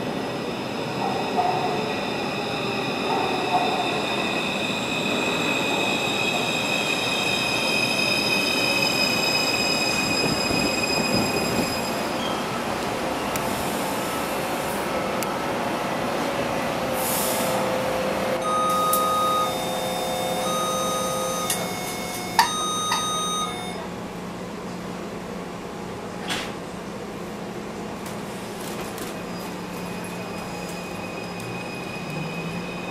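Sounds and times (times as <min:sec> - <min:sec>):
electronic beeping tones: 0:18.4 - 0:23.8.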